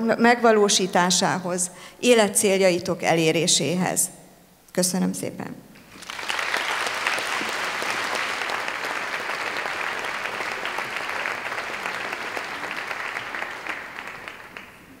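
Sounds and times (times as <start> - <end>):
large audience applauding: 5.8 - 15.0.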